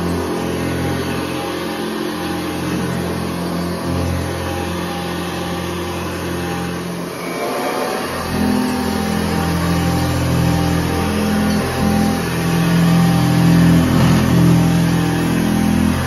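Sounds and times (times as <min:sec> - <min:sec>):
vacuum cleaner running on carpet: 0:00.0 - 0:16.0.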